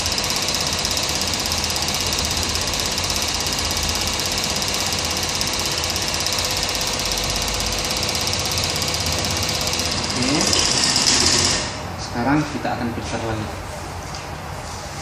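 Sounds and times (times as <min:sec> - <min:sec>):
electric pump buzzing: 0:00.0 - 0:12.0.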